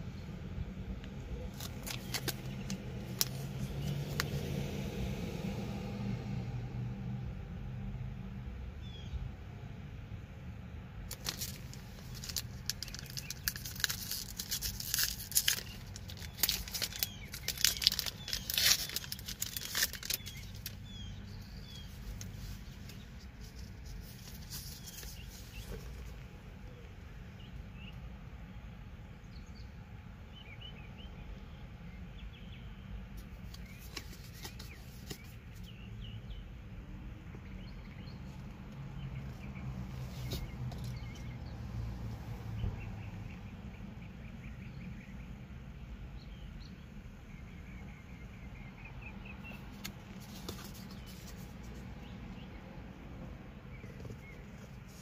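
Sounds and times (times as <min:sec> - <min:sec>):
low steady rumble: 0:00.0 - 0:30.4
wrapper tearing and crinkling: 0:01.5 - 0:03.5, 0:11.1 - 0:20.8.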